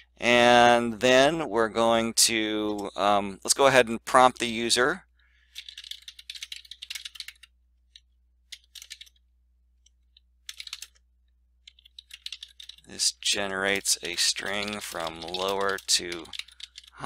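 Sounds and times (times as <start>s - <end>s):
typing on computer keyboard: 5.5s - 9.2s, 10.4s - 11.0s, 11.6s - 17.0s.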